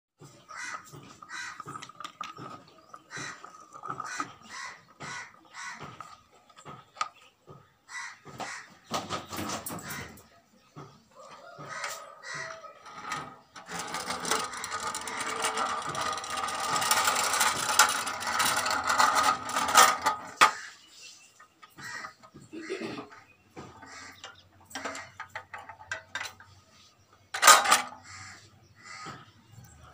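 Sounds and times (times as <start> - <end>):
birds calling: 0.2 - 13.6, 20.2 - 29.9.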